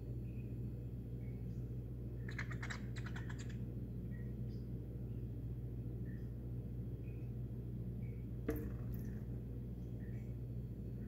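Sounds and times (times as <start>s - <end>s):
steady low hum: 0.0s - 11.0s
faint bird chirps: 0.1s - 6.4s, 7.0s - 7.4s.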